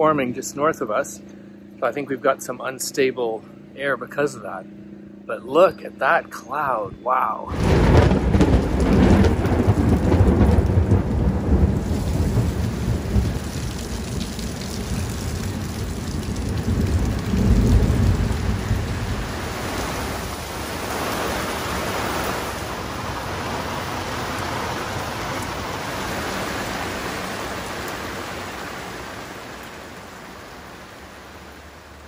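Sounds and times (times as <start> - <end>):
low rumble: 6.9 - 21.7
heavy rain on water and deck: 7.5 - 32.0.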